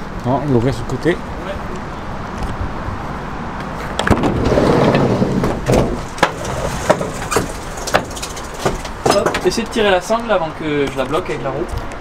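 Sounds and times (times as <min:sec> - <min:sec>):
motorbike wheels rolling and scuffing: 0:02.3 - 0:10.3
knocks on metal ramp: 0:04.0 - 0:09.6.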